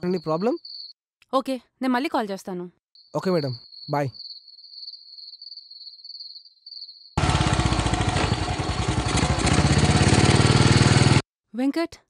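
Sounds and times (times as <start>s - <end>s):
crickets trilling: 0.0s - 1.0s, 3.0s - 7.2s
motorcycle engine running: 7.2s - 11.2s.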